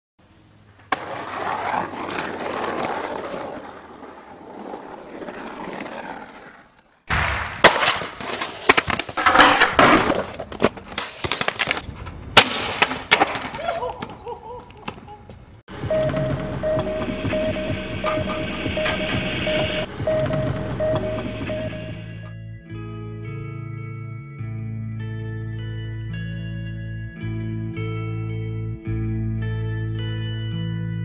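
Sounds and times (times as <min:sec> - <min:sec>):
skateboard wheels rolling on concrete: 0:00.4 - 0:22.3
skateboard clacks: 0:00.8 - 0:11.8
skater falling impacts: 0:00.8 - 0:15.4.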